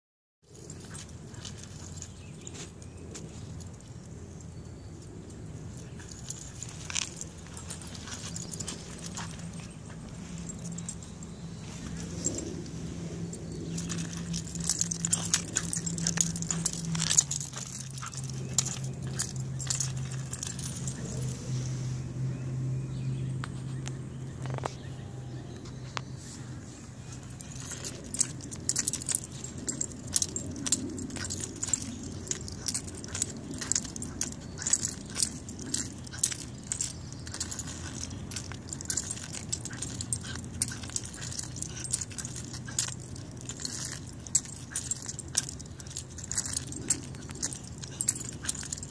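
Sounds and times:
leash hardware jingling: 0.5 - 21.9, 26.9 - 48.9
leash dragging over asphalt: 0.5 - 22.0, 26.3 - 48.9.

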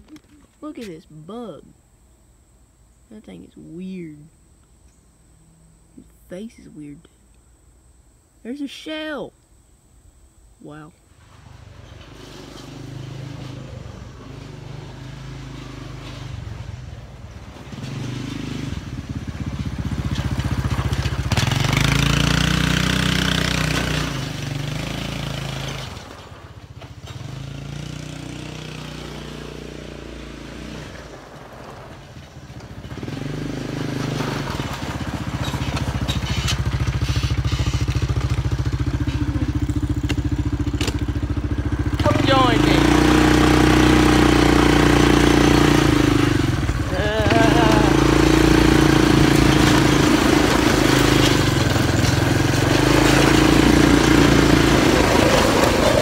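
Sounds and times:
small vehicle engine running: 11.2 - 56.0.

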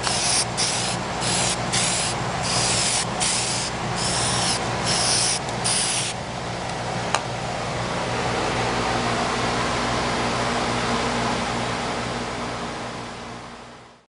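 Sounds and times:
aerosol spray can hissing: 0.0 - 6.2
low hum and hiss: 0.0 - 14.0.

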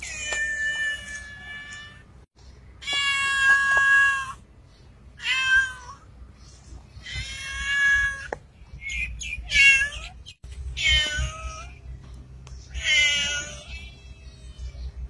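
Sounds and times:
cat meowing: 5.2 - 6.0, 7.0 - 8.3, 9.4 - 10.2, 10.8 - 11.8, 12.7 - 15.0.

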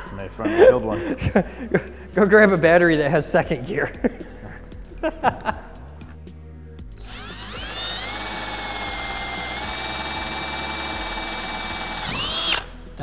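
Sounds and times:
cordless drill whining: 7.0 - 12.9.

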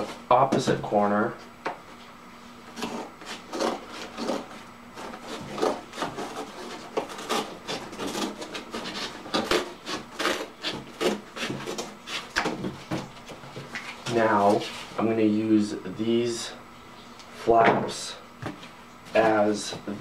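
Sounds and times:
scissors cutting cardboard: 2.7 - 13.2.

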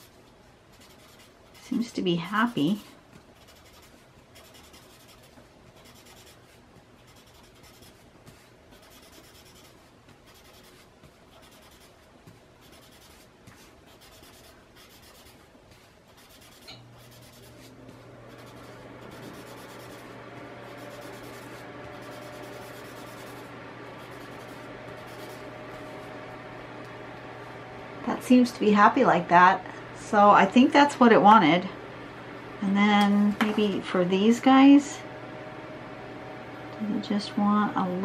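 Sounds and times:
blending stump rubbing on paper: 0.0 - 26.3
steady hum: 0.0 - 38.0.

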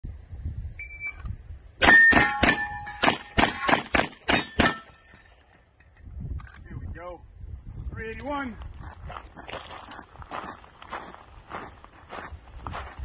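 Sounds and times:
steel targets clanging: 1.8 - 3.7, 4.3 - 6.0
handgun shots: 1.8 - 4.9.

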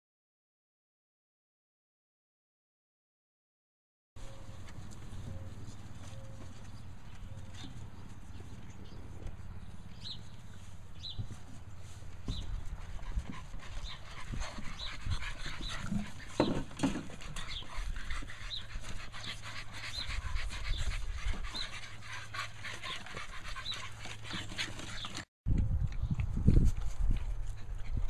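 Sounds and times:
puppies panting: 4.3 - 25.3, 26.8 - 28.0.

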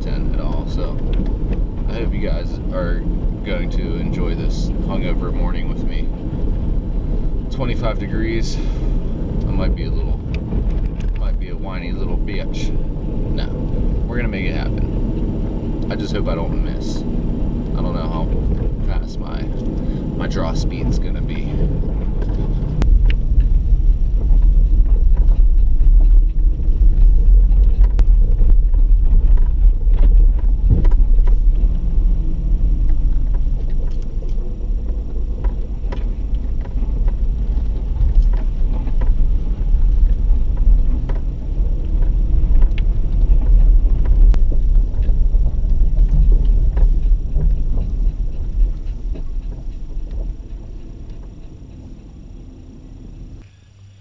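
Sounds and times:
engine and tyres rumbling: 0.0 - 54.0
knocks and rattles from bumps: 9.4 - 52.2.

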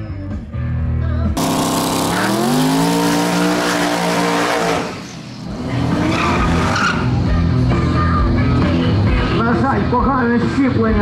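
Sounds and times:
racing car engine accelerating: 1.4 - 7.9.

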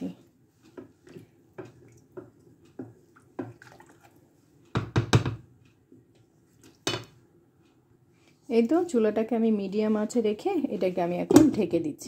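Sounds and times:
water and rice moving in pot: 0.0 - 4.6
knocks against a pot: 4.8 - 5.5.

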